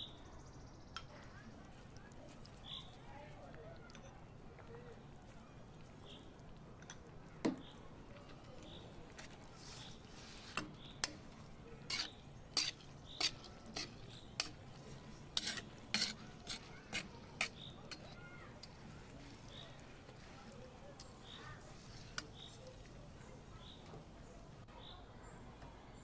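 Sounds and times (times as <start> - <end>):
metal ladle scraping a pot: 8.6 - 22.8.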